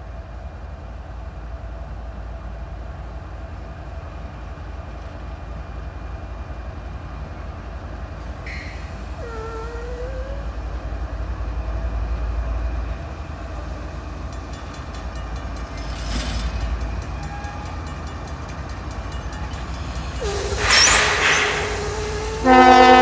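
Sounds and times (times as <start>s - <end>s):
diesel locomotives rumbling: 0.0s - 23.0s
crossing bell ringing: 16.6s - 20.3s
locomotive horn blowing: 20.2s - 23.0s.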